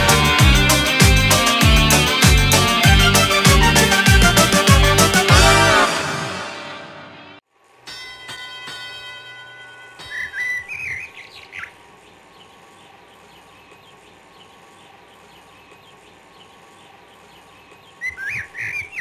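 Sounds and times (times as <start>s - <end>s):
bird whistled song: 10.1s - 11.8s, 17.8s - 19.0s.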